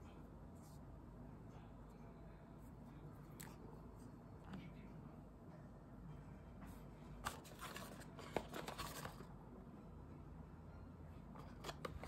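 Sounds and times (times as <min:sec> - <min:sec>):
paperboard box rustling: 0:07.3 - 0:09.3.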